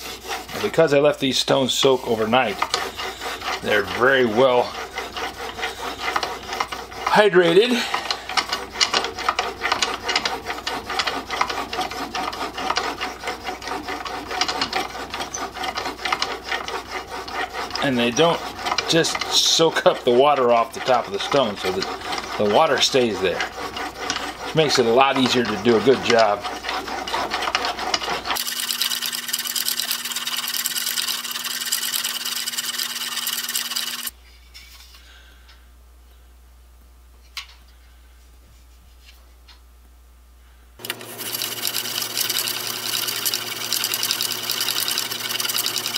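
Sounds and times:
steel scraping on wet stone: 0.0 - 34.1.

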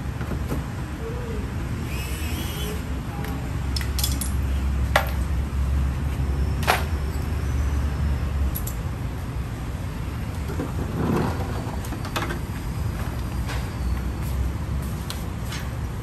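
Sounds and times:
metal tools clinking: 3.8 - 5.2.

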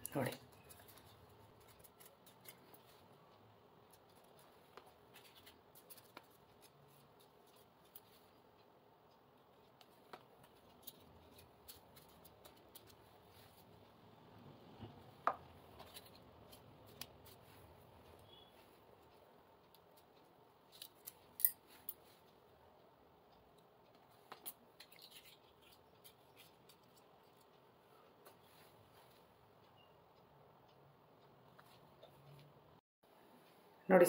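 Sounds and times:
paper rustling: 3.9 - 8.4.

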